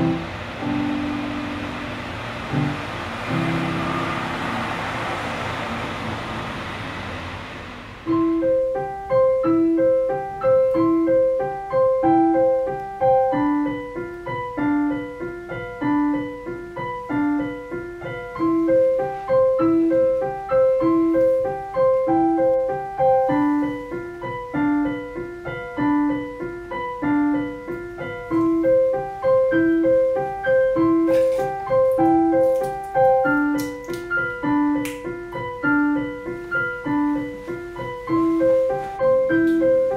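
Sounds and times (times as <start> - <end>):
rushing noise: 0.0 - 9.4
solo piano music: 0.0 - 39.9.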